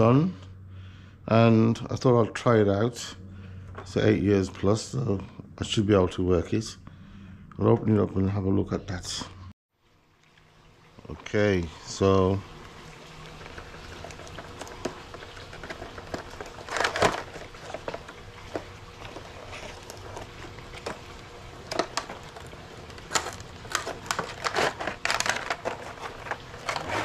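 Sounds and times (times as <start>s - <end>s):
cardboard box rustling and crackling: 13.4s - 27.0s.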